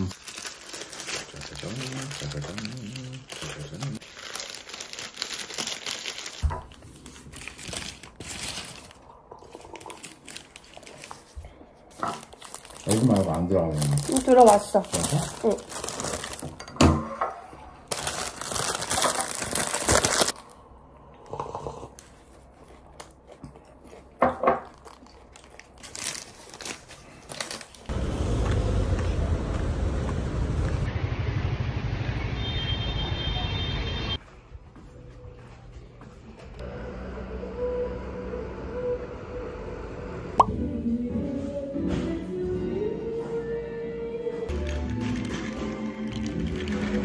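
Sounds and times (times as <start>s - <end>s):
paper wrapper crinkling: 0.0s - 16.6s, 17.9s - 20.6s, 24.6s - 27.9s, 44.5s - 47.0s
street traffic rumble: 27.9s - 34.2s.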